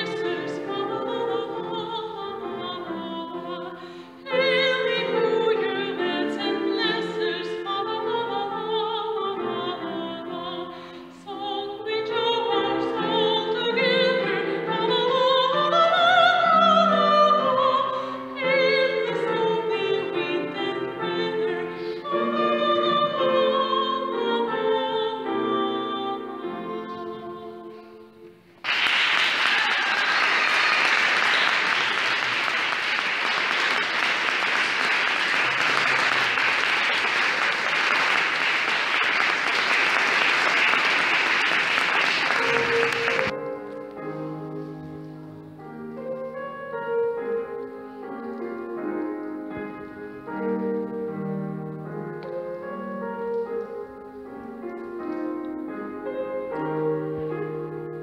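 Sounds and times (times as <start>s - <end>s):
woman singing operatically: 0.0s - 27.7s
audience applause: 28.6s - 43.3s
digital piano accompaniment: 40.4s - 58.0s.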